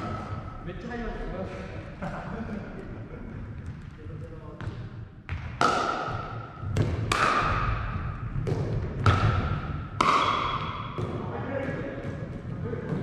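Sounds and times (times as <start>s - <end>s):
ball bouncing on wooden floor: 4.6s - 13.0s
paddles striking plastic ball: 5.3s - 11.2s.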